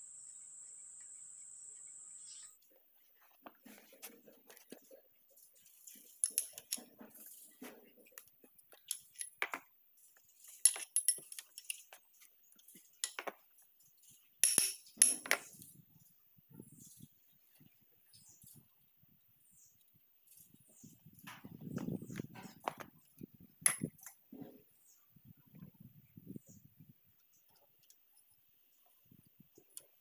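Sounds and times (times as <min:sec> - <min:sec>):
metal tools clinking on engine: 0:10.6 - 0:11.8.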